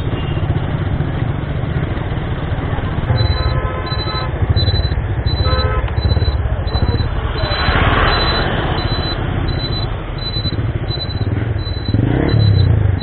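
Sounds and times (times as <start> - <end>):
motorcycle engine running: 0.0 - 13.0
high electronic beeps: 3.1 - 13.0.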